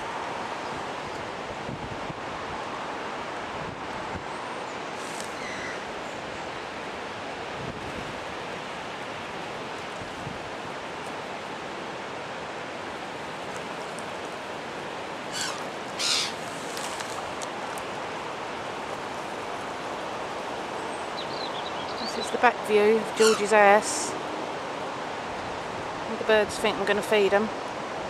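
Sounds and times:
high bird calls: 5.2 - 6.2, 15.3 - 16.5, 23.0 - 23.8.

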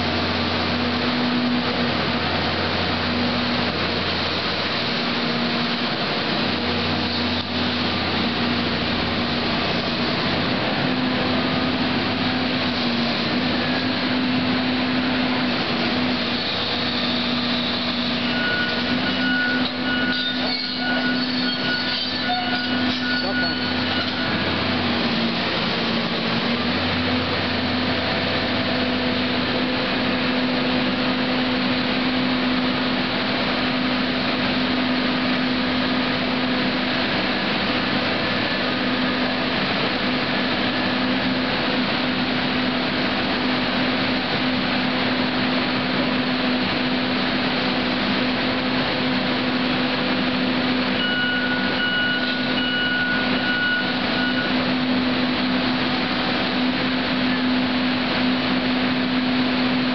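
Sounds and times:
excavator engine and hydraulics: 0.0 - 59.9.

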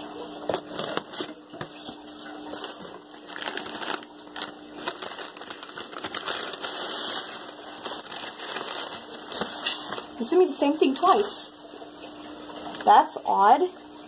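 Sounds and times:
paper rustling and crinkling: 0.4 - 10.2.

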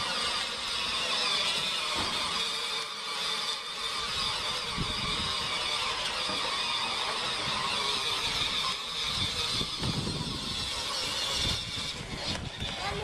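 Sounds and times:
toy electric motor whirring: 0.0 - 13.0
wind on microphone: 4.1 - 5.6, 8.2 - 13.0.

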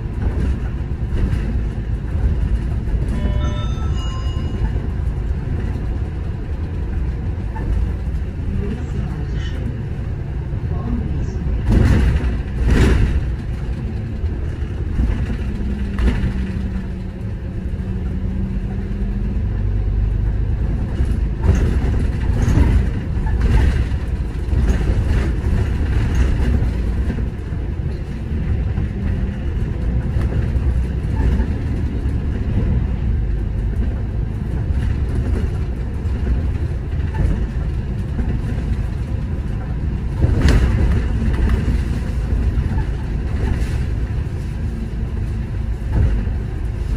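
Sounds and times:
bus engine and road rumble: 0.0 - 46.9
knocks and rattles: 11.6 - 18.5, 20.7 - 32.9, 33.5 - 44.2.

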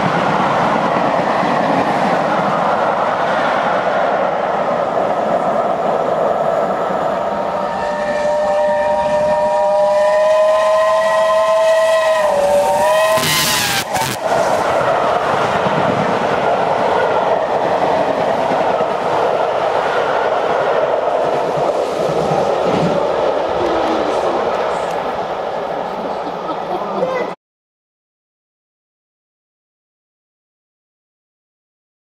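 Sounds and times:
loud rush of passing train: 0.0 - 27.4
steam locomotive whistle: 7.6 - 14.5.

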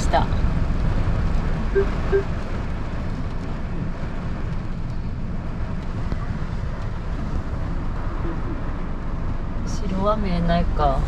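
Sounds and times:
heavy rain on car roof: 2.3 - 8.2.

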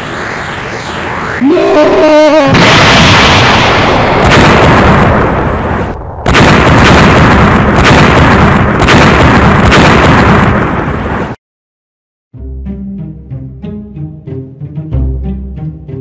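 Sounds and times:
explosion booms: 2.5 - 11.4.

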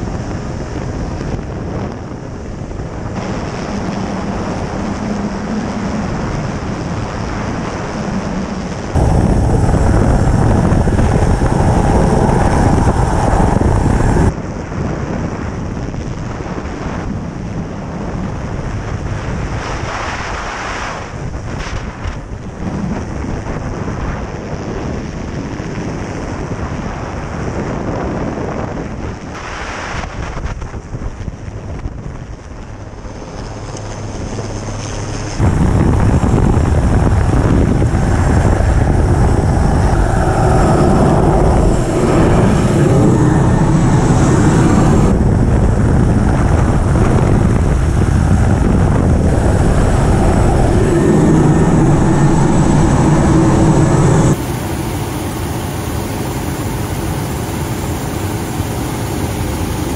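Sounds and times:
heavy seas: 0.0 - 27.9, 28.8 - 59.9
wind buffeting microphone: 0.0 - 59.9
helicopter engines and rotor: 2.8 - 14.3, 32.9 - 59.9.

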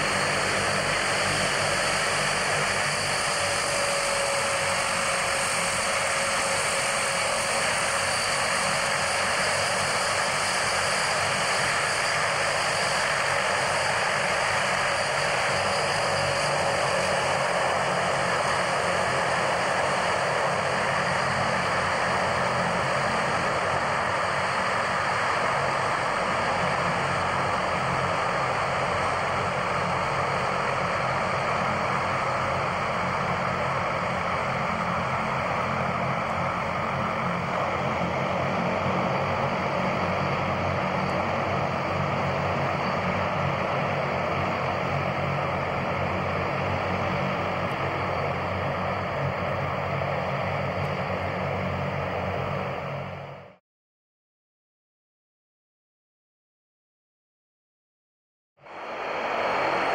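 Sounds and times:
turboprop engines running: 0.0 - 53.6, 58.6 - 59.9.

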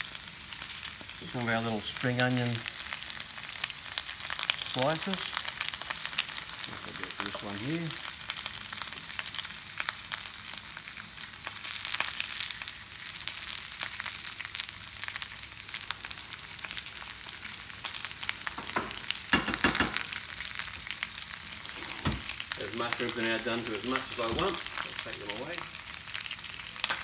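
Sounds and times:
food sizzling in frying pans: 0.0 - 27.0
knocks: 18.6 - 20.0.

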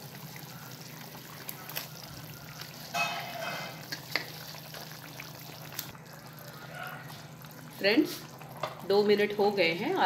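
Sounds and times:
gravy bubbling in a pan: 0.0 - 10.0.

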